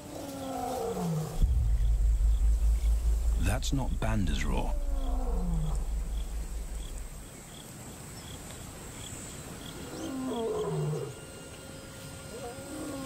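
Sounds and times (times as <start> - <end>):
distant lion roaring: 4.3 - 7.3.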